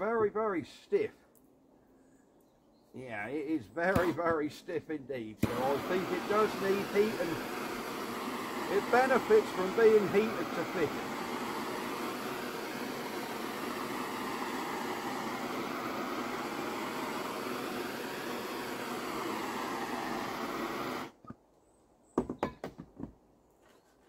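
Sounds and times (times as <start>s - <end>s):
blowtorch roaring: 5.4s - 21.2s.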